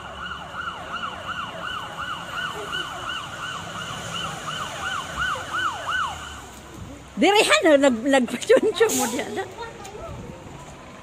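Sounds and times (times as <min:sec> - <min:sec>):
fire engine siren yelping: 0:00.0 - 0:06.6.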